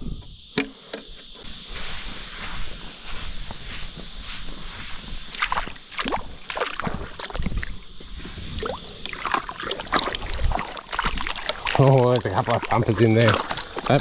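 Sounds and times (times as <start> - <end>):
water sloshing and splashing: 5.3 - 14.0
water dripping back down: 8.5 - 14.0.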